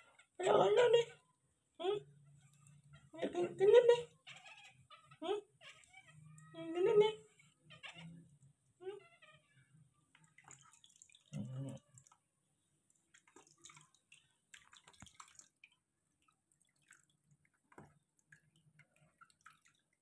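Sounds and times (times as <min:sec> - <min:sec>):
water dripping and trickling: 0:10.1 - 0:20.0.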